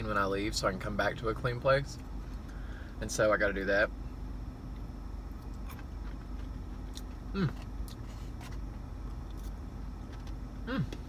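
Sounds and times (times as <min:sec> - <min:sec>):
car cabin hum: 0:00.0 - 0:11.0
man chewing: 0:04.7 - 0:11.0
man humming mm: 0:07.3 - 0:07.7, 0:10.6 - 0:11.0.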